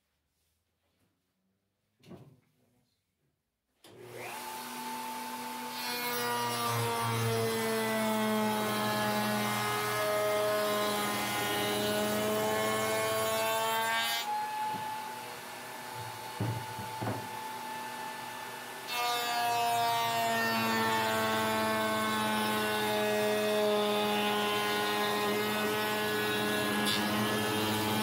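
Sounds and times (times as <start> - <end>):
wood router whining: 3.9 - 28.0
router rasping through board: 4.1 - 14.9, 18.9 - 28.0
knocks: 16.0 - 17.4.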